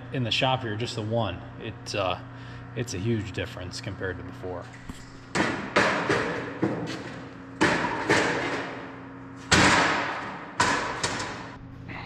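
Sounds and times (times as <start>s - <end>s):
heavy metal thumps and slams: 5.3s - 11.5s.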